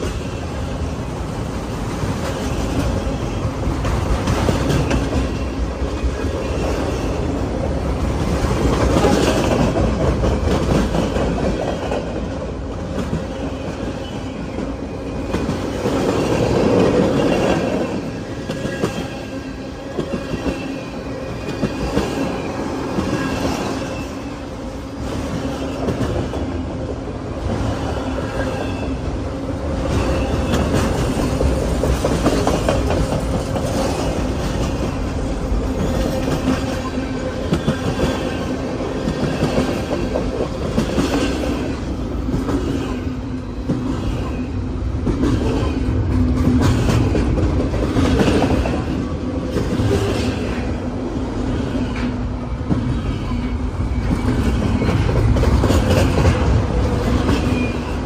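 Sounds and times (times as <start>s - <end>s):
freight train rumbling: 0.0s - 58.0s
train wheels clicking over rail joints: 1.9s - 6.9s, 29.8s - 50.6s, 51.9s - 58.0s.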